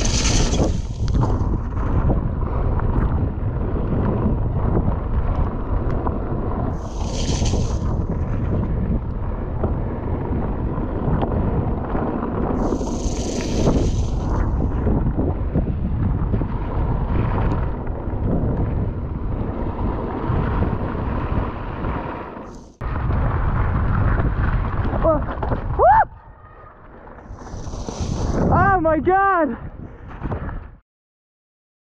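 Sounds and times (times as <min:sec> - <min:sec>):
brief hissing rushes: 0:00.0 - 0:01.0, 0:06.8 - 0:07.8, 0:12.6 - 0:14.4
bike tyres rolling on gravel: 0:00.0 - 0:28.6
wind buffeting microphone: 0:00.0 - 0:30.8.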